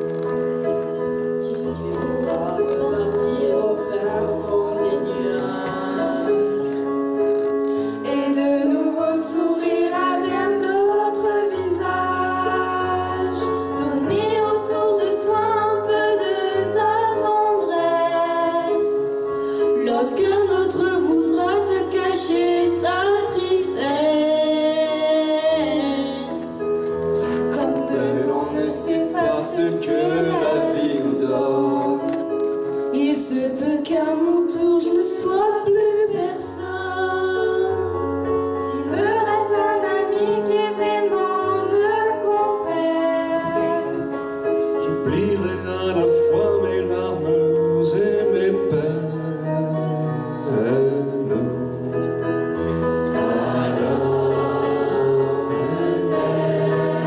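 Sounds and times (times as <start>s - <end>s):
instrumental accompaniment: 0.0s - 57.0s
choir singing: 8.0s - 18.6s, 27.5s - 32.2s, 38.6s - 44.2s, 45.1s - 57.0s.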